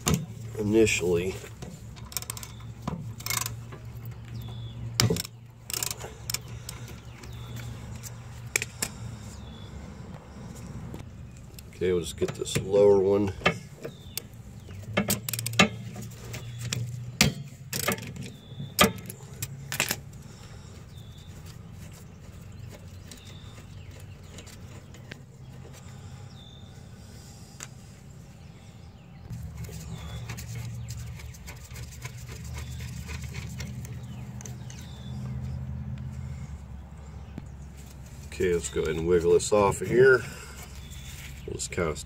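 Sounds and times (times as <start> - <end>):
ratchet clicking: 5.2 - 6.4.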